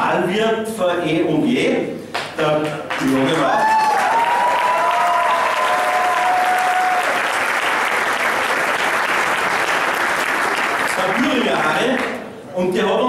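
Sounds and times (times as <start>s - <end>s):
audience applauding: 2.9s - 12.2s.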